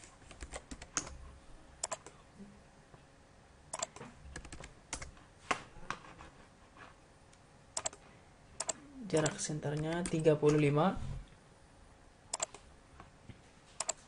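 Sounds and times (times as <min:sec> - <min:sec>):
keyboard and mouse clicks: 0:00.0 - 0:01.2, 0:01.8 - 0:02.2, 0:03.7 - 0:05.1, 0:07.8 - 0:08.0, 0:08.6 - 0:10.6, 0:12.3 - 0:12.7, 0:13.8 - 0:14.0.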